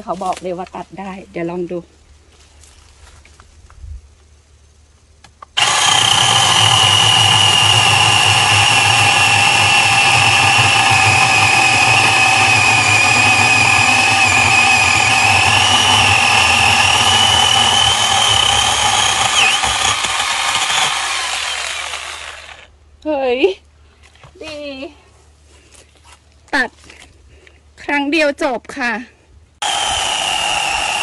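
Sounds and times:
electric chainsaw whining: 5.6s - 22.7s, 29.6s - 31.0s.

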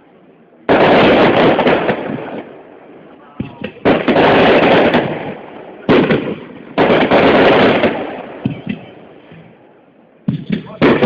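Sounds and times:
firework shells bursting: 3.4s - 9.6s.

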